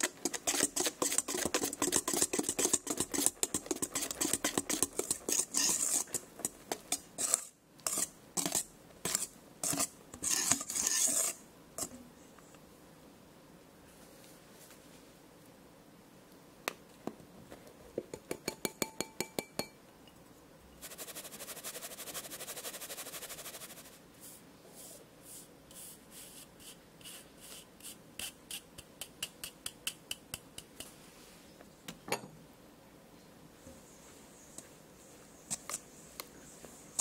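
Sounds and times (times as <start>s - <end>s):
sieve tapping and rattling: 0.0s - 7.0s.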